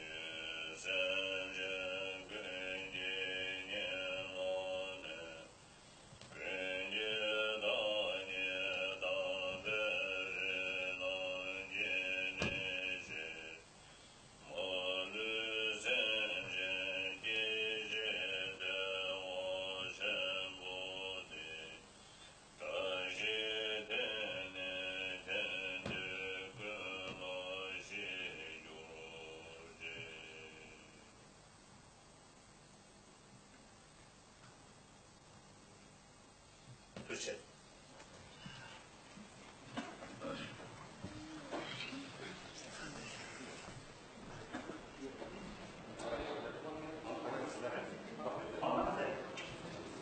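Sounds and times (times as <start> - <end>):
man chanting in low voice: 0.0 - 5.6, 6.3 - 13.7, 14.4 - 21.8, 22.6 - 31.1, 40.2 - 50.0.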